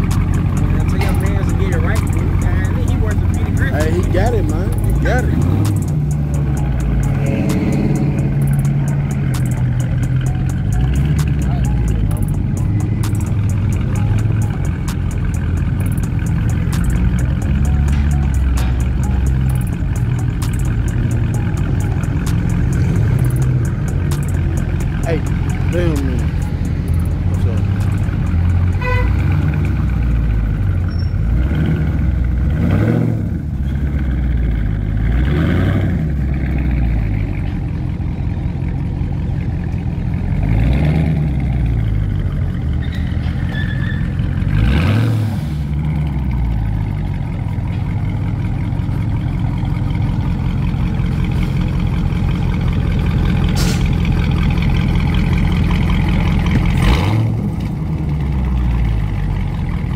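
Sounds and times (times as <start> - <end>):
car engine revving loudly: 0.0 - 18.8, 31.2 - 37.2, 40.3 - 42.2, 44.2 - 46.8, 53.5 - 58.4.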